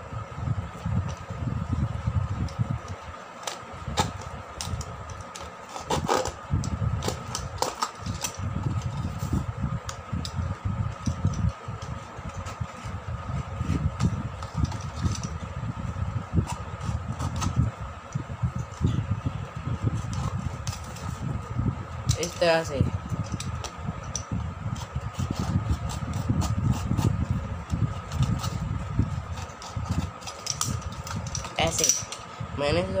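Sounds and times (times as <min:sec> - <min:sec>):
steady hum: 0:00.0 - 0:33.0
utility knife cutting cardboard: 0:03.4 - 0:06.4, 0:07.0 - 0:09.5, 0:16.4 - 0:17.7, 0:24.7 - 0:31.8
low rumble: 0:06.4 - 0:33.0.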